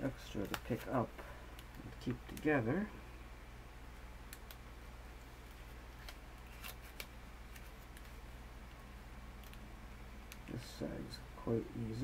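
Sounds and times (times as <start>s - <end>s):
steady low hum: 0.0s - 12.0s
soft clicks: 4.3s - 4.6s, 10.2s - 10.6s
paper crinkling: 5.4s - 8.2s.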